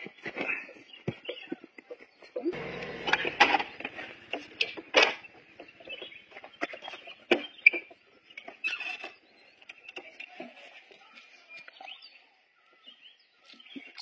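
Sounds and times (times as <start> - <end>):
faint bird chirps: 5.2 - 14.0.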